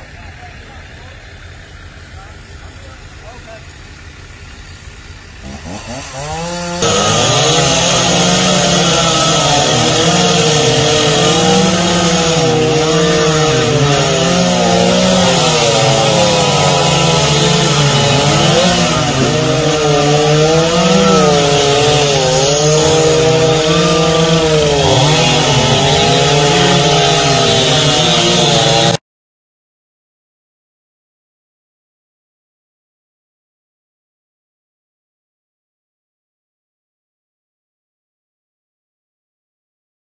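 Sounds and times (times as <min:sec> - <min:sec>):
chainsaw cutting tree trunk: 0:00.8 - 0:29.0.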